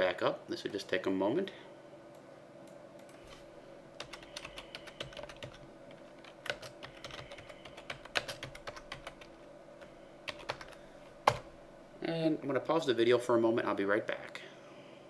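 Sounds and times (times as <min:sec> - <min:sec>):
faint steady hum: 0:00.0 - 0:15.0
computer keyboard typing: 0:04.0 - 0:09.4, 0:10.3 - 0:11.5.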